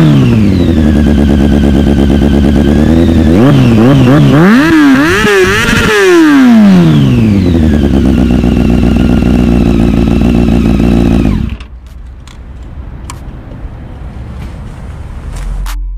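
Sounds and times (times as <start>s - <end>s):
motorcycle engine revving and idling: 0.0s - 11.8s.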